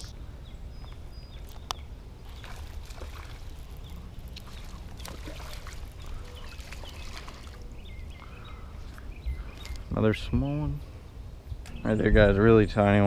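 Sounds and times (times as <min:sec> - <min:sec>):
birds chirping faintly: 0:00.0 - 0:13.0
fish splashing at water surface: 0:02.2 - 0:07.7.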